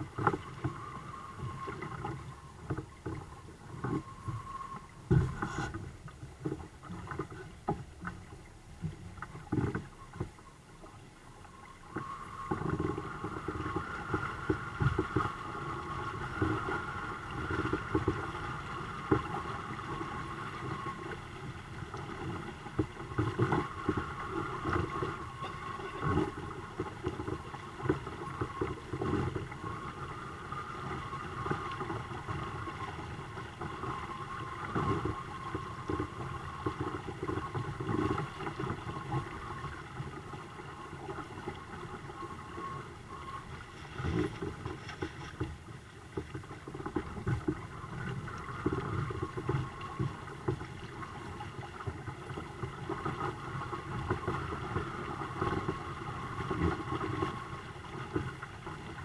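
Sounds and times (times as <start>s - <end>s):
water slapping against hulls: 0.0s - 10.4s.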